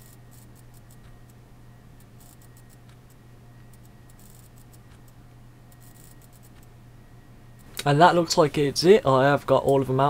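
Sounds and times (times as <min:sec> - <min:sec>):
computer mouse and keyboard clicks: 0:00.0 - 0:01.4, 0:02.0 - 0:05.2, 0:05.8 - 0:06.7
steady low hum: 0:00.0 - 0:10.0.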